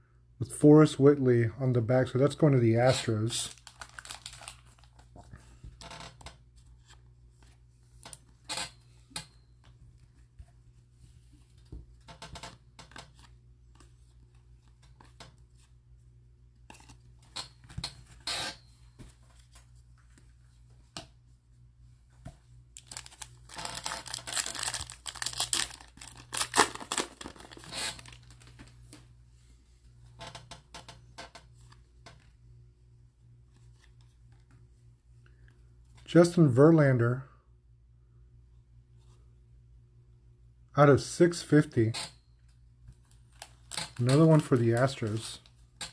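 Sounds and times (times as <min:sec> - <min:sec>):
cards clicking and rustling: 0:03.0 - 0:05.1, 0:22.8 - 0:29.0, 0:43.0 - 0:45.9
wrapper tearing and crinkling: 0:03.4 - 0:05.0, 0:22.8 - 0:28.5, 0:43.3 - 0:45.3.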